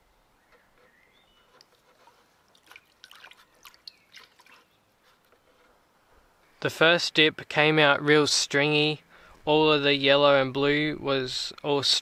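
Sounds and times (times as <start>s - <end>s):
water splashing in a bucket: 2.5s - 4.7s.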